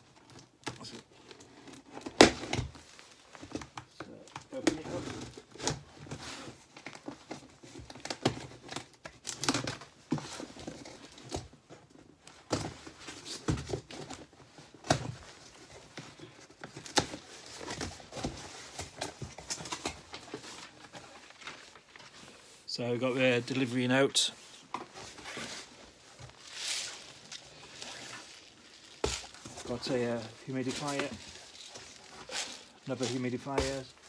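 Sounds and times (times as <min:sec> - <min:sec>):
cardboard and paper crinkling: 0:00.0 - 0:34.0
knocks and scrapes: 0:24.3 - 0:34.0
tape tearing: 0:24.7 - 0:34.0.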